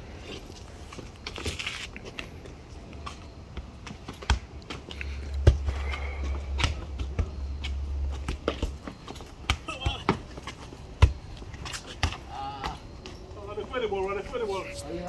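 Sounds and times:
rubber ball bouncing on asphalt: 3.0s - 13.2s.

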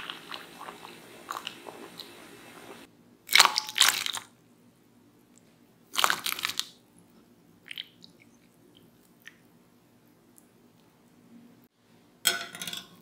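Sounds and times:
water boiling in a pot: 0.0s - 2.9s.

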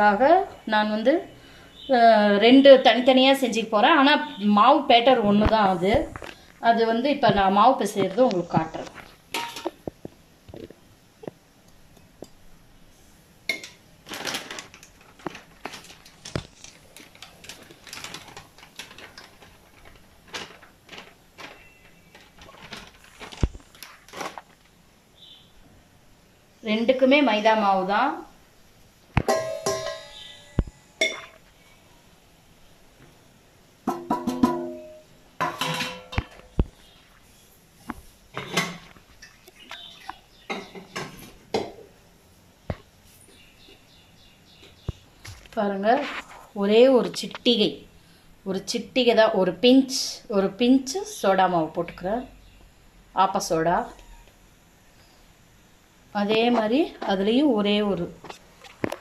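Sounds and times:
metal bowls clinking: 9.3s - 9.8s, 29.2s - 30.4s, 31.0s - 31.4s, 33.9s - 36.4s
rustling: 13.5s - 25.3s
bowls knocking on counter: 29.2s - 30.2s, 33.9s - 36.3s
taps and clinks on steel bowl: 29.3s - 30.1s.

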